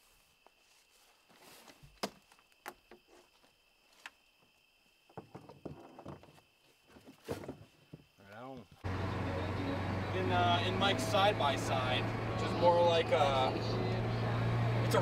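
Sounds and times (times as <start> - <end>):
high insect trill: 0.0 - 8.8.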